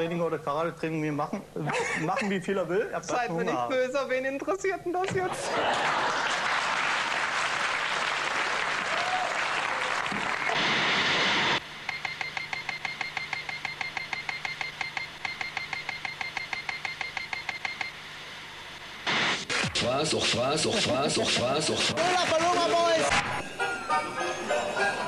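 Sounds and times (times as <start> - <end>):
audience applauding: 5.4 - 11.6
short electronic typing beeps: 11.9 - 18.0.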